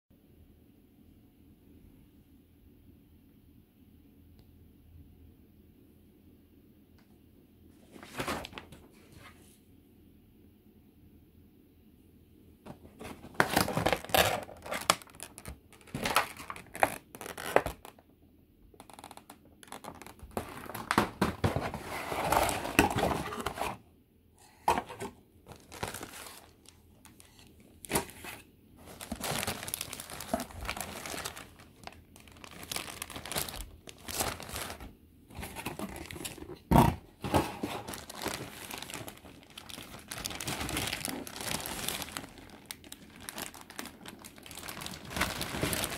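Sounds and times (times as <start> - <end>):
plastic bags crinkling: 12.7 - 18.0, 18.8 - 23.8, 24.4 - 45.9.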